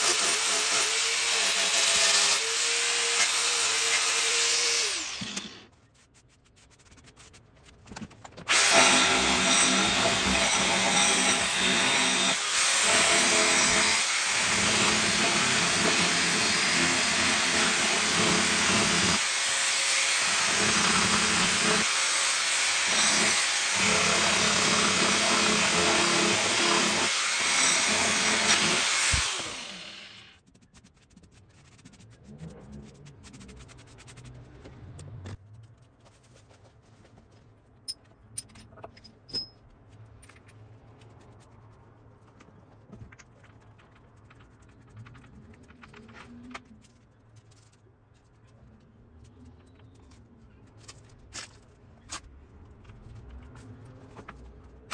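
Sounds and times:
angle grinder sanding wood: 8.5s - 14.4s, 24.9s - 30.3s.

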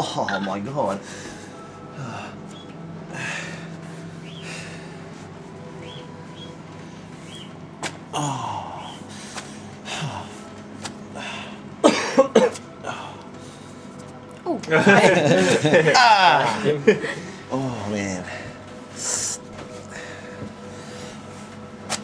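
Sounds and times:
man breathing hard: 3.1s - 5.2s, 8.1s - 10.5s, 11.1s - 11.7s, 18.2s - 21.4s
man coughing: 11.8s - 12.6s.

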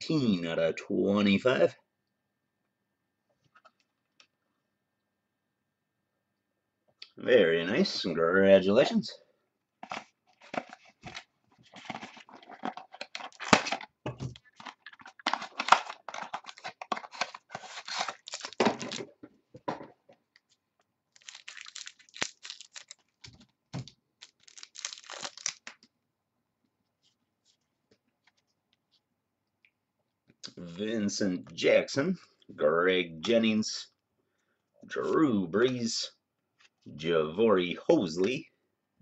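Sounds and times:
foil wrapper tearing and crinkling: 11.8s - 13.8s, 14.6s - 19.1s, 21.1s - 23.3s, 24.2s - 25.8s.

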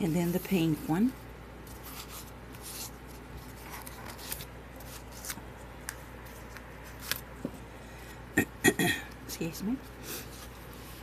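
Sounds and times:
steady low hum: 0.0s - 11.0s
paper card rustling: 1.6s - 7.5s.

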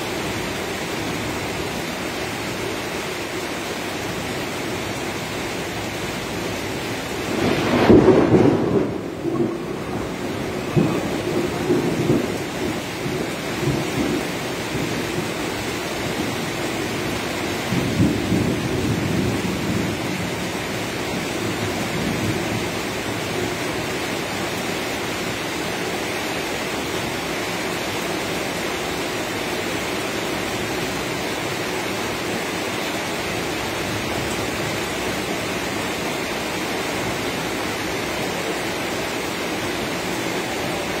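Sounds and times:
rain falling: 0.0s - 41.0s
thunder rumbling: 7.2s - 23.9s.

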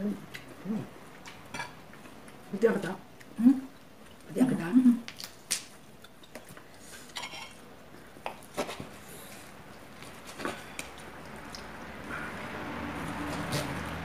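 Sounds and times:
cutlery clinking on plates: 7.1s - 7.6s.

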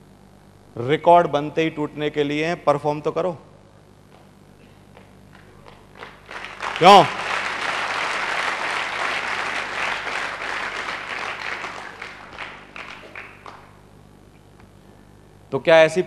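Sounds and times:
audience applauding: 5.3s - 13.8s.

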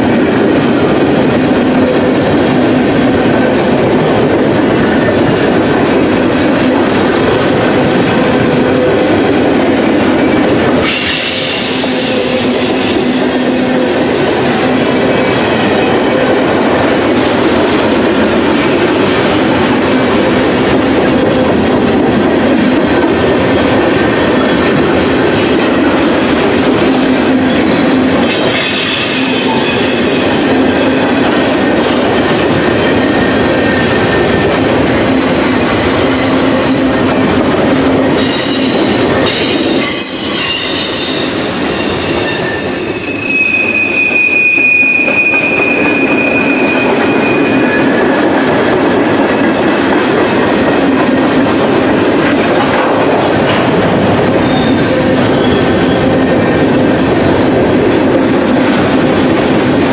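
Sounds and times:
train wheels rumbling on rails: 0.0s - 59.9s
high wheel squeals: 38.2s - 47.9s.

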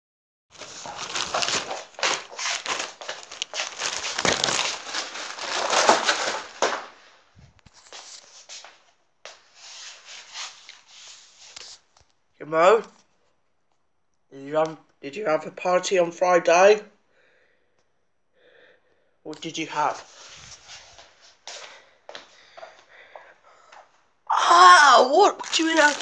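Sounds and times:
crinkly wrapping crumpling: 0.5s - 8.6s, 25.1s - 26.0s.

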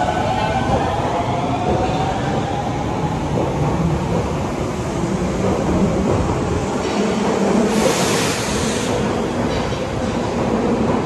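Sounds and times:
subway train rumbling: 0.0s - 11.0s
hiss burst: 7.7s - 9.2s.

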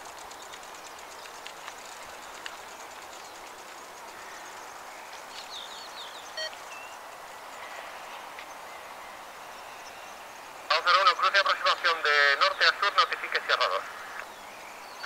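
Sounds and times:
distant jet engine noise: 0.0s - 15.0s
bird chirps: 0.1s - 7.7s.

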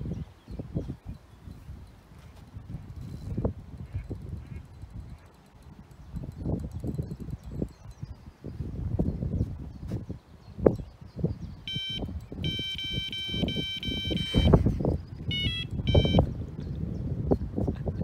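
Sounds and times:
electronic bite alarm beeping: 11.7s - 16.4s.

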